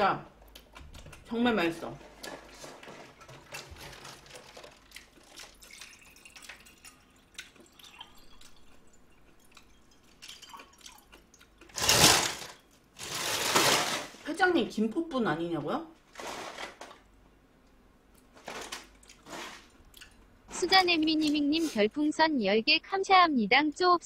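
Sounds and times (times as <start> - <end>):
plastic bottle crinkling: 2.1 - 6.6, 11.6 - 14.3, 16.1 - 17.0, 18.3 - 20.1
water pouring into glass: 5.1 - 11.1.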